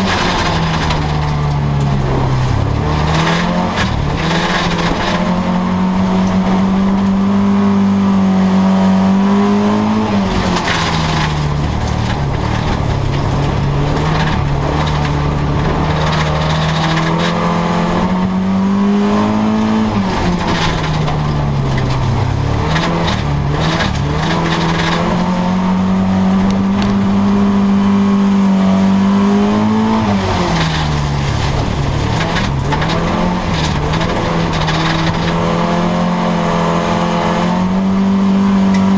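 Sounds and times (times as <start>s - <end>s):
knocks and rattles: 0.0s - 7.4s, 10.2s - 18.4s, 19.4s - 27.5s, 30.0s - 36.1s
race car engine: 0.0s - 38.9s.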